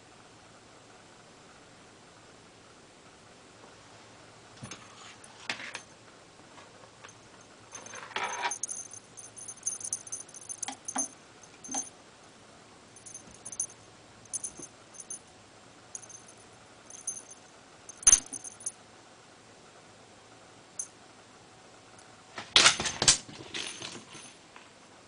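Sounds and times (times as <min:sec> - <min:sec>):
small bell jingling: 0:07.4 - 0:11.9, 0:13.0 - 0:15.3, 0:15.9 - 0:18.8.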